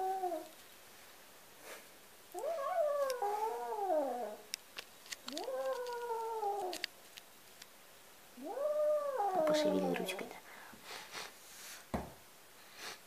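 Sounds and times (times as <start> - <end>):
faint clicks: 2.4 - 3.2, 4.5 - 7.8
cat yowling: 2.4 - 4.4, 5.3 - 6.8, 8.4 - 10.0.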